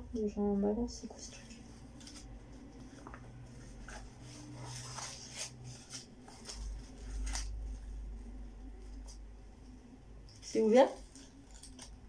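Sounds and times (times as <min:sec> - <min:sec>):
packaging rustling and crinkling: 0:01.5 - 0:08.1.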